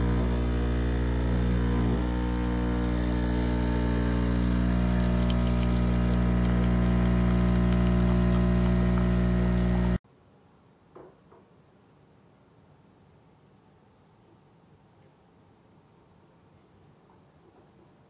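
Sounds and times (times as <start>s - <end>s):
espresso machine pump humming: 0.0s - 10.0s.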